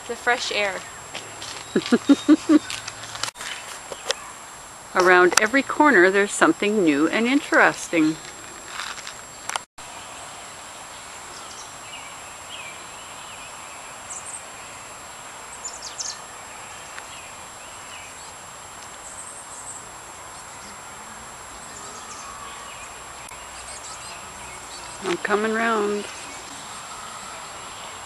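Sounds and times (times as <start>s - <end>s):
open air hiss: 0.0s - 28.0s
bird chirps and twitters: 1.5s - 2.8s
thin steady high tone: 15.6s - 28.0s.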